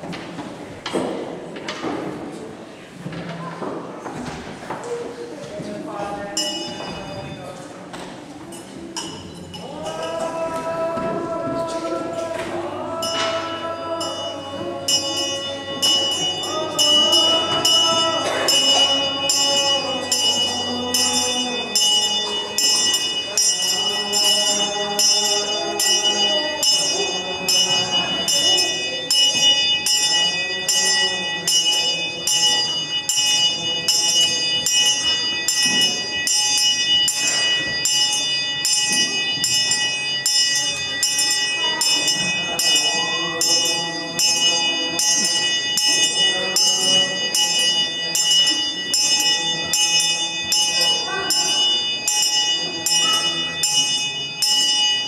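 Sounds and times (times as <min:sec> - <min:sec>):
brass handbell ringing: 0:06.4 - 0:07.3, 0:13.0 - 0:55.0.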